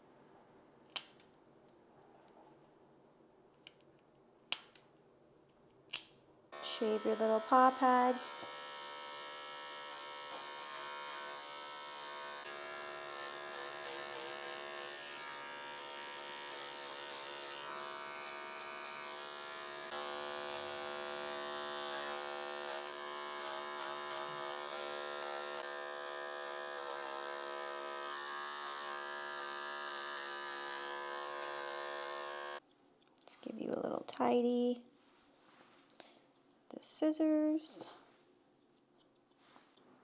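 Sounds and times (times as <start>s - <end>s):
electric grooming clippers buzzing: 6.6s - 32.6s.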